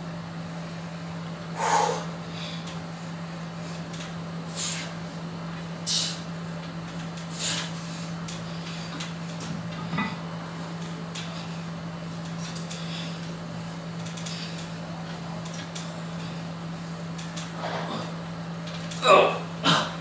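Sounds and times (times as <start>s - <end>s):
sharp exhaled breath: 1.6s - 2.6s.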